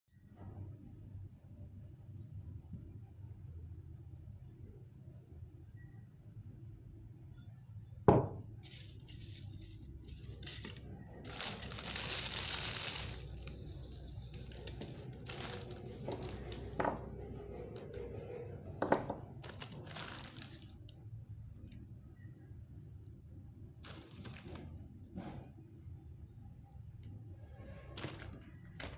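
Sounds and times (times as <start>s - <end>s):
plastic bag crinkling and tearing: 8.7s - 16.9s, 19.4s - 20.9s, 23.8s - 24.7s, 28.0s - 28.9s.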